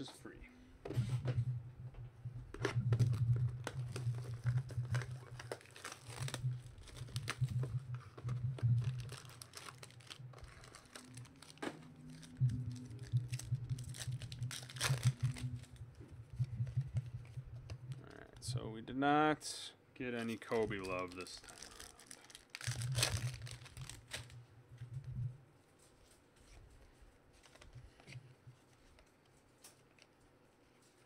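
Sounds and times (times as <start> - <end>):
low hum: 0.0 - 19.0
wrappers crinkling and tearing: 2.8 - 15.8, 20.2 - 24.4.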